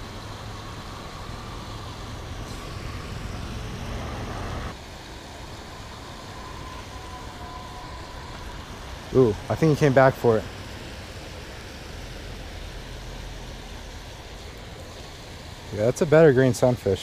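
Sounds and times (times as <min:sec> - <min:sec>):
outdoor rushing noise: 0:00.0 - 0:15.9.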